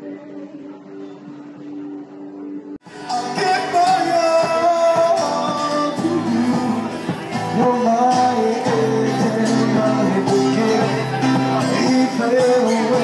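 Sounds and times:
acoustic guitar strumming: 0:02.8 - 0:13.0
person singing: 0:02.9 - 0:13.0.

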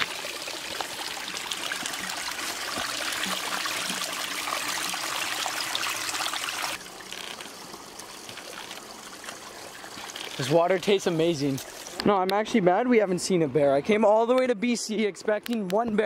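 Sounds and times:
spring water trickling over rocks: 0:00.0 - 0:12.4.

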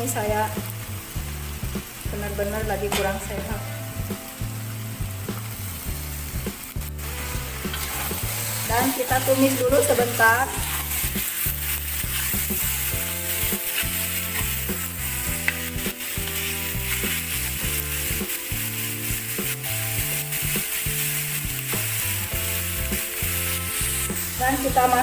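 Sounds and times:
meat sizzling in a wok: 0:00.0 - 0:25.0
soft background music: 0:00.0 - 0:25.0
metal spatula scraping: 0:07.0 - 0:25.0.

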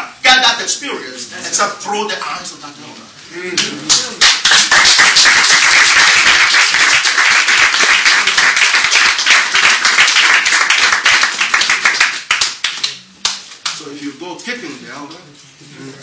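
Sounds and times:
audience applauding: 0:03.9 - 0:13.4.

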